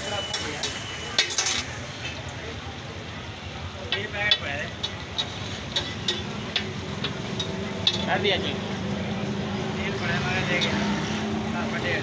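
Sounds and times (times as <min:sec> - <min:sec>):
metal spatula clicking on griddle: 0:00.3 - 0:01.7, 0:03.9 - 0:08.1
egg sizzling on griddle: 0:04.0 - 0:08.3.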